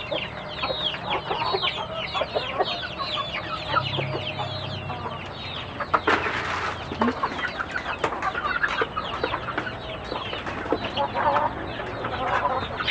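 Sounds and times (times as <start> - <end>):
chicks peeping: 0.0 - 12.9
hens clucking: 0.0 - 12.9.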